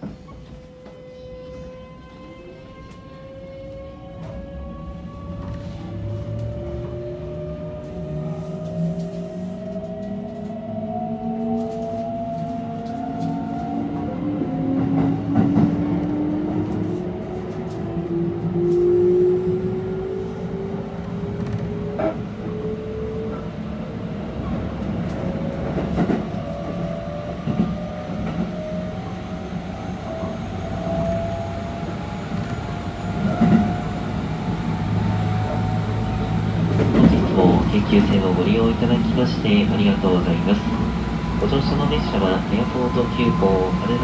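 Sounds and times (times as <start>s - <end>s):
train running rumble: 24.3s - 44.0s.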